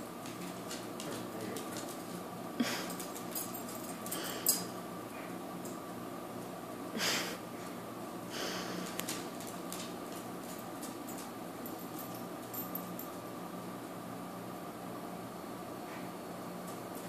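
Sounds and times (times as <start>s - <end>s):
steady low hum: 0.0s - 17.0s
animal breathy noises: 7.0s - 9.0s.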